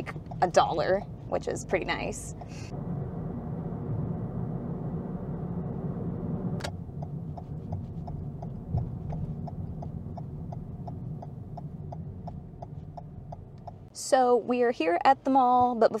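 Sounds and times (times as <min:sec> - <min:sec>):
turn signal ticking: 0:00.0 - 0:02.7, 0:06.6 - 0:16.0
road and engine rumble: 0:00.0 - 0:16.0.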